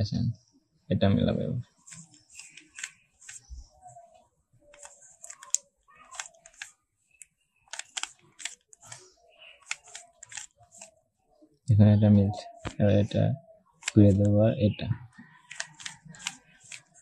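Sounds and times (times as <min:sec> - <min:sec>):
puzzle cube layers clicking: 0:01.8 - 0:03.5, 0:04.7 - 0:06.7, 0:07.7 - 0:09.0, 0:09.6 - 0:10.9, 0:13.8 - 0:14.3, 0:15.4 - 0:17.0.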